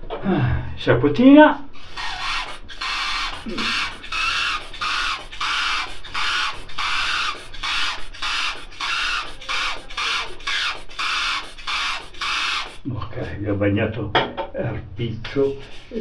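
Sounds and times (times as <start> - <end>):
razor scraping stubble: 1.7 - 13.4, 15.5 - 16.0.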